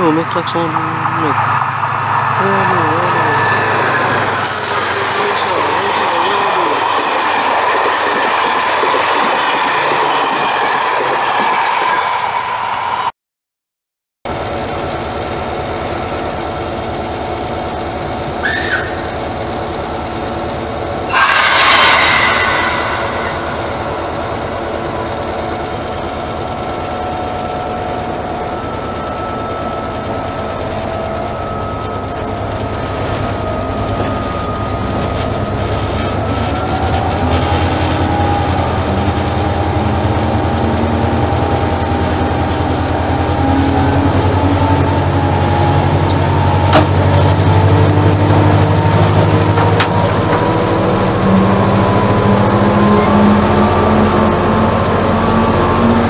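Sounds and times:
diesel locomotive engine running: 0.0 - 13.1, 14.3 - 56.0
loud hiss: 21.1 - 24.3.

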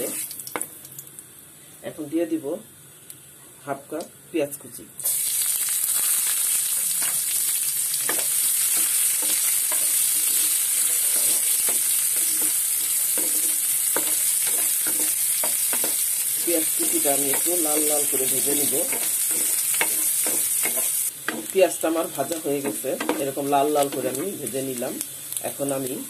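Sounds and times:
onions sizzling in hot oil: 0.0 - 1.2, 5.0 - 26.0
spatula scraping a pan: 8.1 - 21.5.

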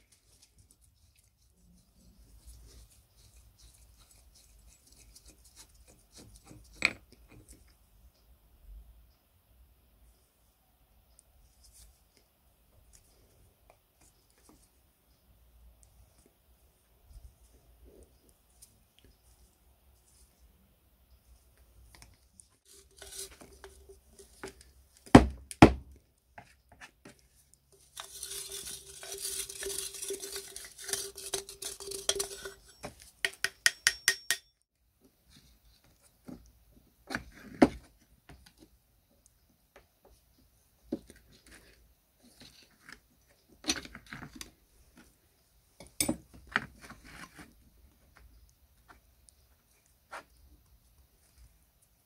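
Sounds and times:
metal scraping: 22.7 - 24.5, 27.8 - 34.4.

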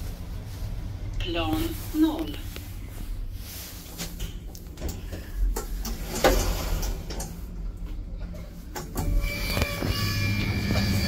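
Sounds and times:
lift doors sliding open: 3.9 - 11.0.

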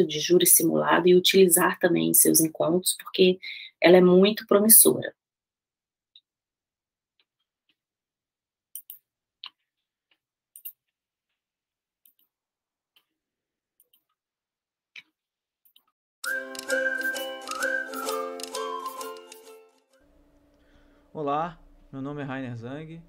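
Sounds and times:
music: 16.2 - 23.0.

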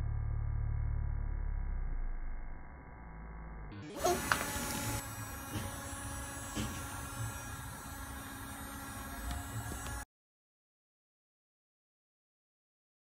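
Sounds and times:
small electric motor buzzing: 3.8 - 10.1.

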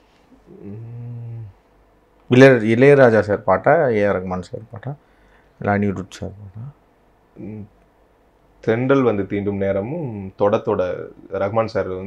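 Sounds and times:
man humming: 0.3 - 1.7, 7.4 - 7.7.

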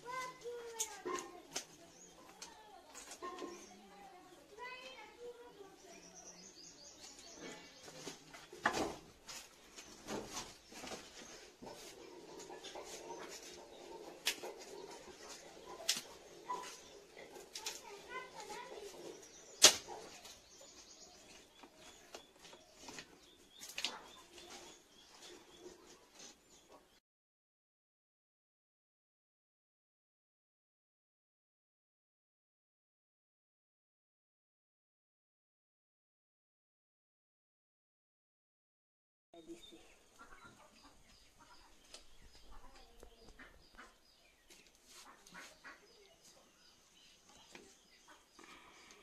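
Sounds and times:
small birds chirping: 0.0 - 27.0, 39.4 - 49.0
chickens clucking: 7.0 - 26.9, 39.4 - 46.6
bird calls: 39.4 - 49.0.

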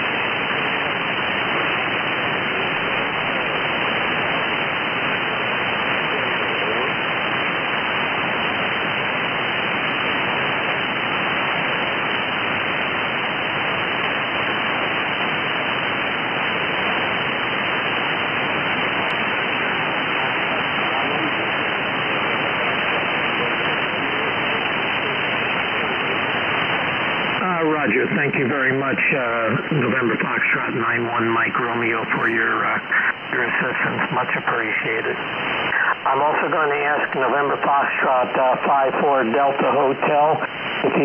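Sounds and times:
faint high whine: 0.0 - 41.0
shortwave radio static: 0.0 - 41.0.

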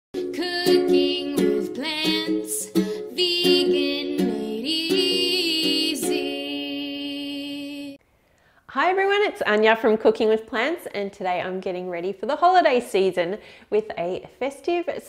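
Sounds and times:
person singing gliding melody: 0.2 - 8.0
plucked strings: 0.2 - 8.0.

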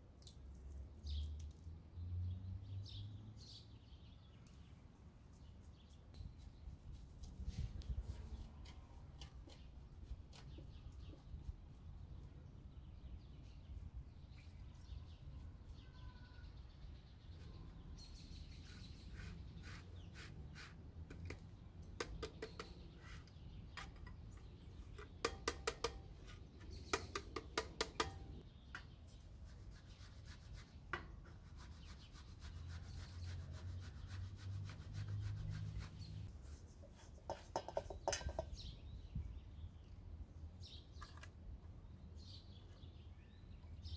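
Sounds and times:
food grating on metal grater: 18.6 - 20.8.

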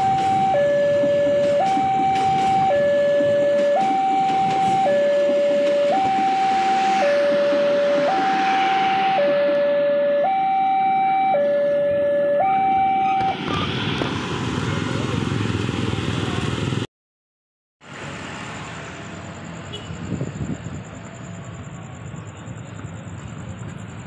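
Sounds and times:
high steady trill: 0.0 - 13.2
level crossing two-tone alarm: 0.0 - 13.4
passing train rumble: 0.0 - 16.9, 17.8 - 24.0
road traffic: 0.0 - 16.9, 17.8 - 24.0.

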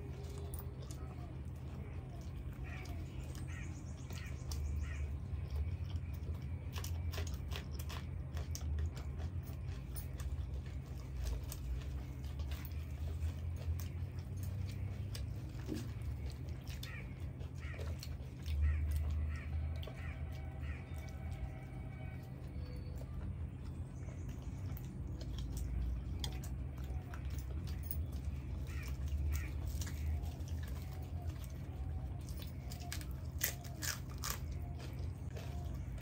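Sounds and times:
person chewing crunchy food: 0.0 - 36.0
crisp bread tearing: 32.2 - 35.9.

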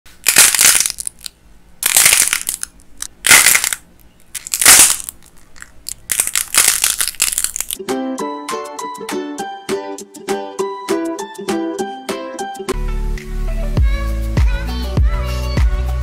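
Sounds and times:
dried clay cracking and crunching: 0.2 - 7.8.

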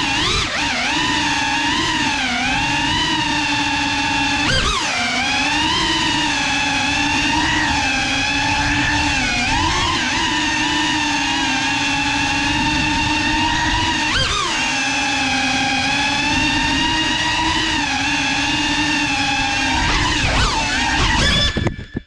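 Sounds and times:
drone motors whining: 0.0 - 22.0.

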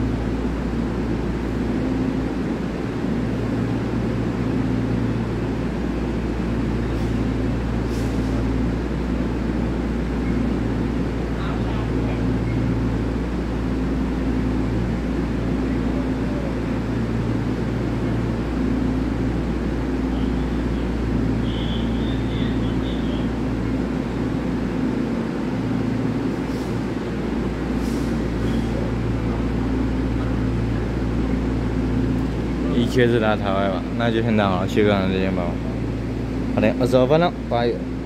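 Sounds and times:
electric train equipment humming: 0.0 - 38.0
short hisses: 7.9 - 8.4, 27.8 - 28.7.

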